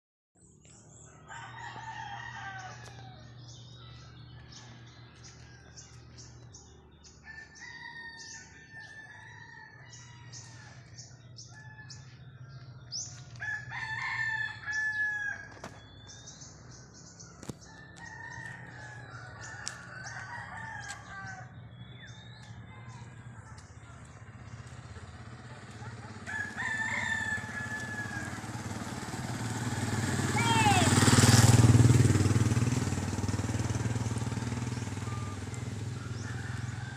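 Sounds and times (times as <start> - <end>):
roosters crowing: 1.0 - 16.4, 17.4 - 23.6, 24.4 - 36.9
small birds chirping: 2.6 - 13.6, 14.5 - 28.3.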